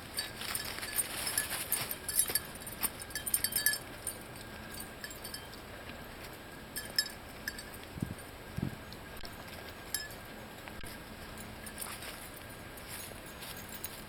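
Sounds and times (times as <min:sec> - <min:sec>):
footsteps in dry leaves: 0:00.0 - 0:03.2, 0:09.3 - 0:14.0
collar tags jingling: 0:00.0 - 0:05.6, 0:06.4 - 0:08.4, 0:09.4 - 0:14.0.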